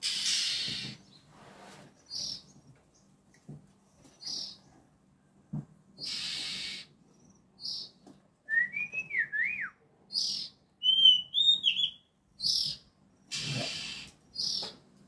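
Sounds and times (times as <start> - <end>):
harsh hissing bird calls: 0.0 - 2.4, 6.0 - 7.9, 11.8 - 14.6
bird whistled song: 7.6 - 7.9, 8.5 - 12.8.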